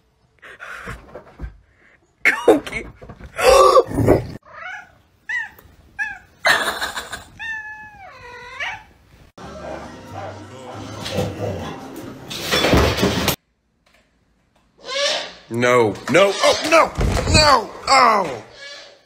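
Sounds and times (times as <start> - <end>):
cat meowing: 7.2 - 9.0.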